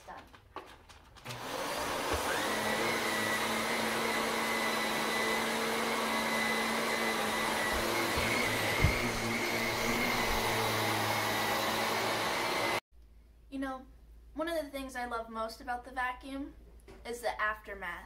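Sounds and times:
vacuum cleaner running: 0:01.3 - 0:12.8
thump: 0:07.6 - 0:10.5.

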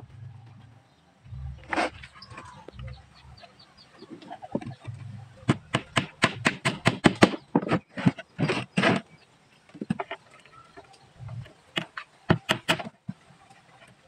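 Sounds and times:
hammer striking nail into wood: 0:05.5 - 0:07.4.

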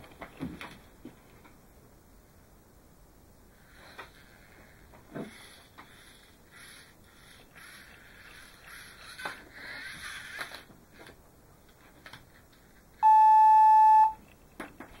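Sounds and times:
steady electronic beep: 0:13.0 - 0:14.2.

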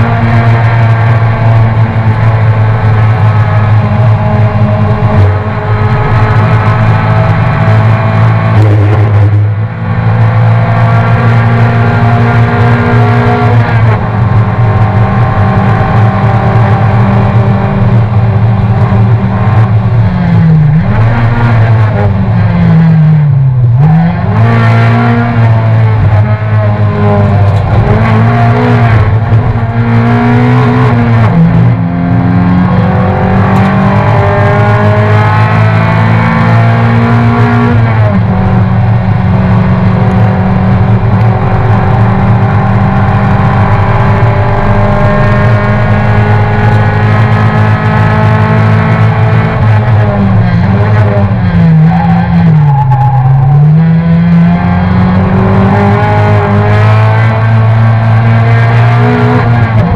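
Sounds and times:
race car engine revving: 0:00.0 - 0:59.9
engine gear changes: 0:25.4 - 0:36.6.

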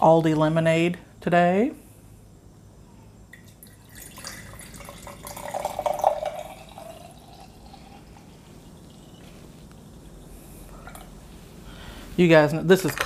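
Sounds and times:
liquid pouring into glass jar: 0:03.4 - 0:09.2.

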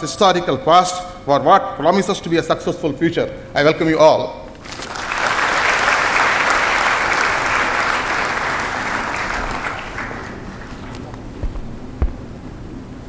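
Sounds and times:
audience applauding: 0:04.6 - 0:11.3.

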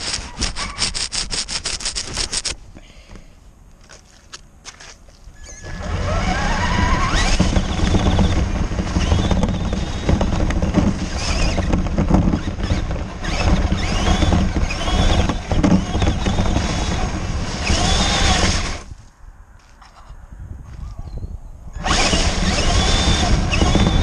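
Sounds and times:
toy car motor whining: 0:00.0 - 0:02.6, 0:05.4 - 0:18.9, 0:21.8 - 0:24.0
tyres rumbling on wet slush: 0:05.6 - 0:18.9.

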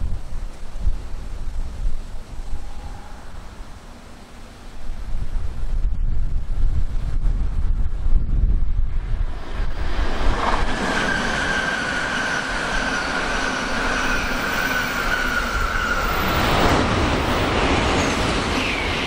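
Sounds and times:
bullet train rushing past: 0:00.0 - 0:19.0
train high whine: 0:00.2 - 0:19.0.

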